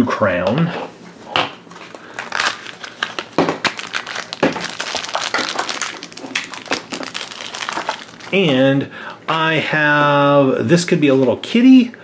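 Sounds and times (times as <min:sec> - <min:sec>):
foil bag crinkling: 0:01.7 - 0:08.5.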